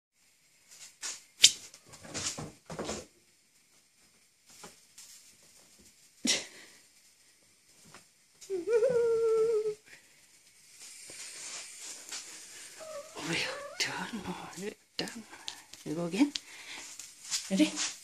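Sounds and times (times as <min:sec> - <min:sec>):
cat calling: 0:12.6 - 0:14.3.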